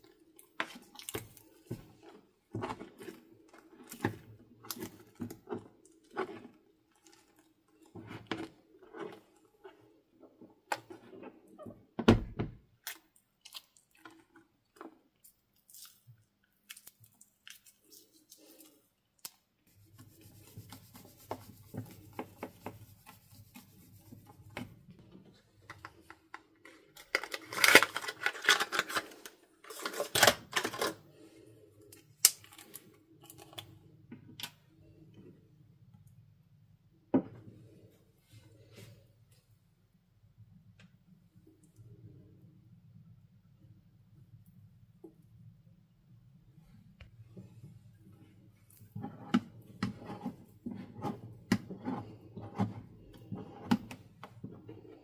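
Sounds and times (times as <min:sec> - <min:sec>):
foam squishing and scraping in bowl: 0:00.0 - 0:11.6, 0:19.6 - 0:31.3, 0:46.6 - 0:55.0.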